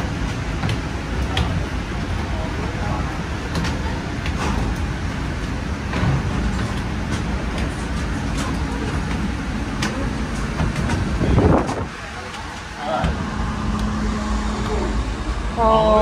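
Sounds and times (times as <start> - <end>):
steady low rumble: 0.0 - 16.0
footsteps climbing stairs: 3.4 - 13.9.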